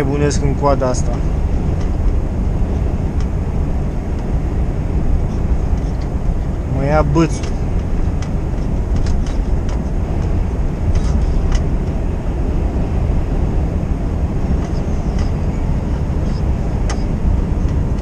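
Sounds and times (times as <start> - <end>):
truck engine and road rumble: 0.0 - 18.0.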